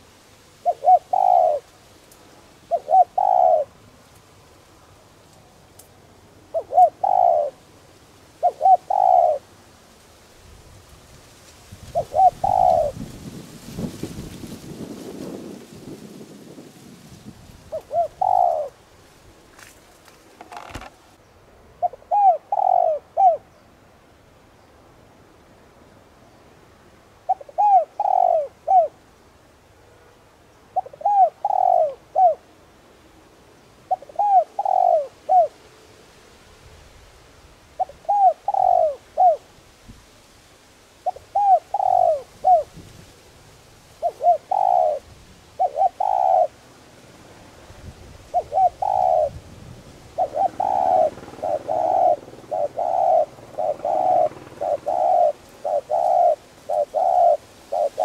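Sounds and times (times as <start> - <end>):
dove cooing: 0.6 - 1.7, 2.6 - 3.8, 6.5 - 7.7, 8.4 - 9.5, 11.8 - 13.2, 17.6 - 18.8, 20.4 - 21.0, 21.8 - 23.5, 27.2 - 29.0, 30.8 - 32.5, 33.8 - 35.6, 37.8 - 39.5, 41.0 - 42.8, 44.0 - 46.6, 48.2 - 58.0.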